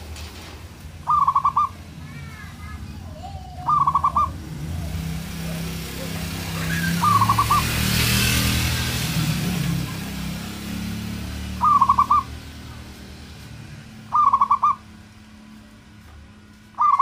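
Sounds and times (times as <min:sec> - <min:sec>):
dove cooing: 0:01.0 - 0:01.8, 0:03.2 - 0:07.8, 0:11.6 - 0:12.3, 0:14.1 - 0:14.9.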